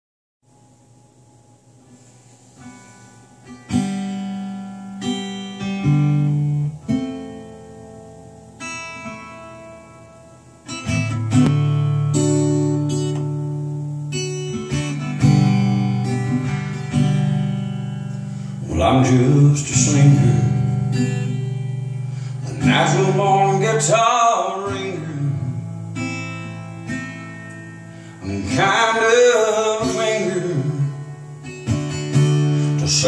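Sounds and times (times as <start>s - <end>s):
acoustic guitar blues: 1.8s - 33.0s.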